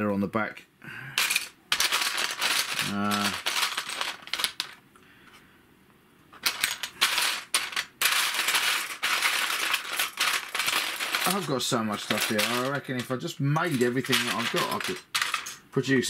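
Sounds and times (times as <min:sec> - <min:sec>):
plastic parts clattering in a box: 0:01.2 - 0:04.8, 0:06.4 - 0:15.6.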